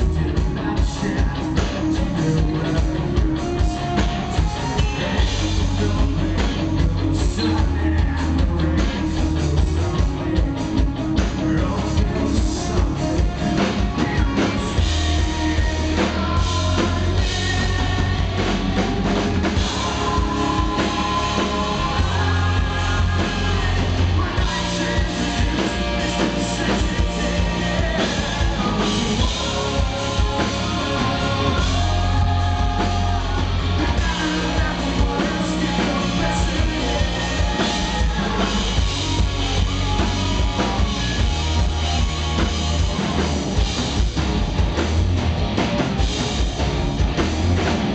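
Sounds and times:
man singing lead: 0.0 - 43.7
rock band playing: 0.0 - 47.9.

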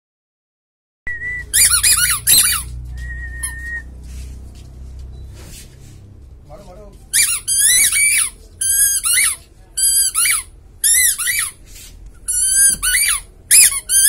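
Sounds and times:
puppy whining: 1.5 - 3.8.

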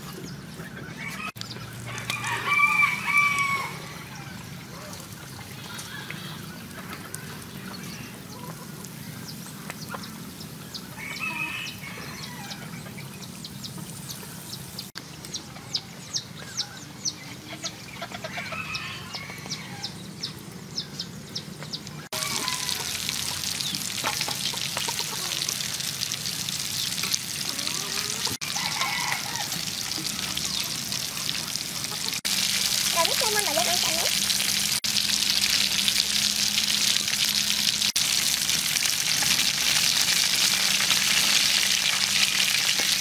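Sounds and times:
chickens clucking: 0.0 - 14.4, 15.2 - 20.0, 21.6 - 34.9
chicken deep-frying in hot oil: 0.0 - 19.9, 21.8 - 43.0.

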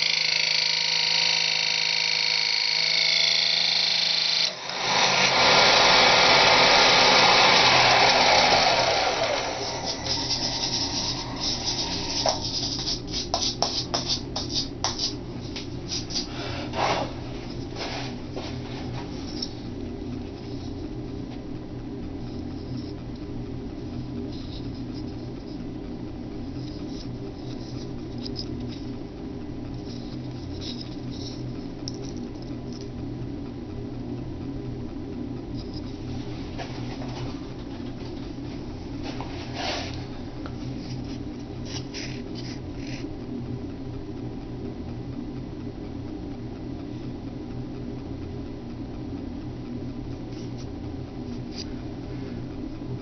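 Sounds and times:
lathe cutter running down: 0.0 - 12.1
steady low hum: 0.0 - 53.0.

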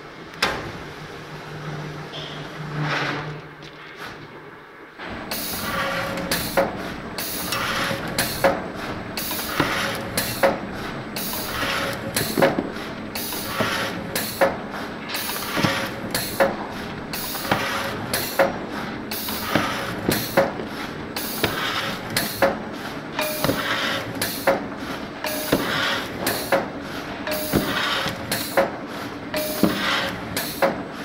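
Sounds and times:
brief machine tone: 2.1 - 2.5.

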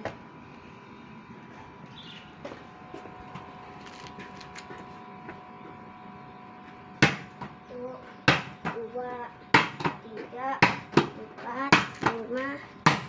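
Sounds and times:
ball bouncing on hard ground: 7.0 - 7.6, 9.5 - 10.0, 10.6 - 13.0.

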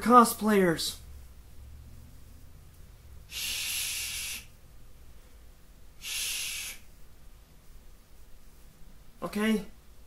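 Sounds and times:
person shushing: 3.3 - 4.6, 6.0 - 6.9.

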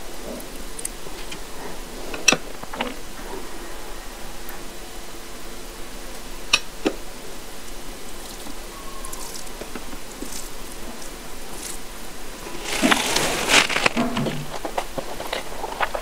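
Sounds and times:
fingers squishing rice and curry: 8.2 - 10.6
small wet clicks: 8.2 - 10.6.

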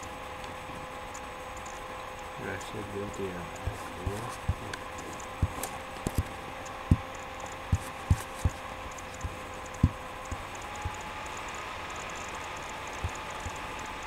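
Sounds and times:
background hum: 0.0 - 14.0
dull low thumps: 3.6 - 7.1, 9.2 - 11.0.

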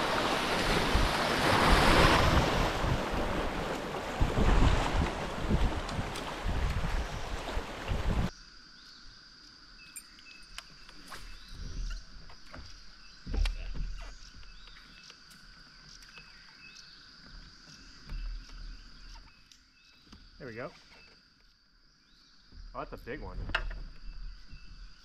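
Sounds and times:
rushing river water: 0.0 - 8.3
wind buffeting microphone: 0.0 - 8.3.

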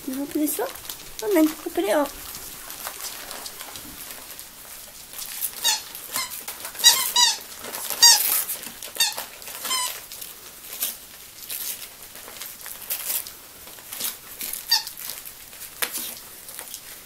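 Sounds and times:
wrapping paper rustling and ripping: 0.0 - 17.0
high-pitched squeaks: 5.5 - 10.0.

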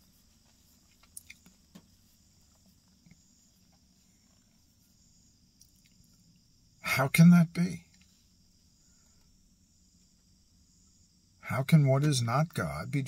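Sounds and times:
small faint clicks: 0.4 - 1.9, 5.5 - 6.5.

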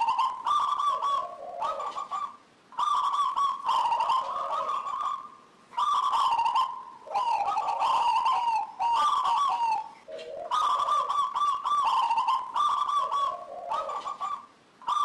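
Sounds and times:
dove cooing: 0.0 - 15.0.

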